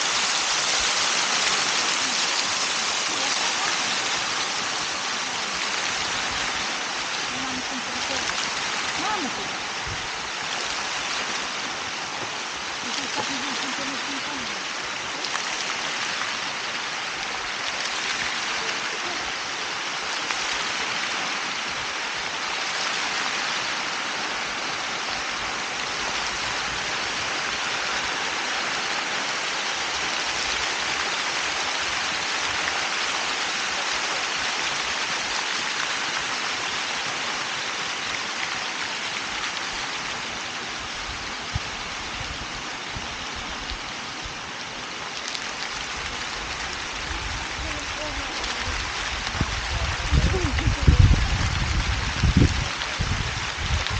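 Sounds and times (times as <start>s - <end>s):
fountain water splashing: 0.0s - 53.9s.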